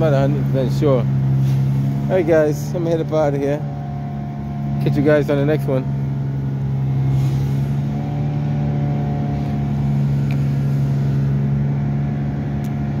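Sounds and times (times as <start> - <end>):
large engine droning: 0.0 - 13.0.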